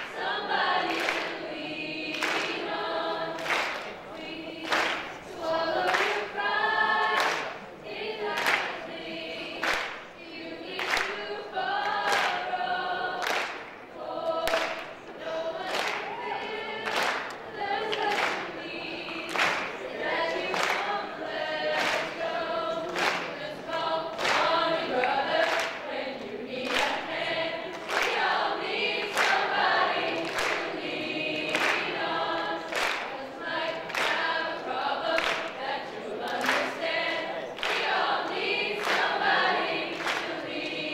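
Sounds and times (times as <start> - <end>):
choir singing: 0.0 - 40.9.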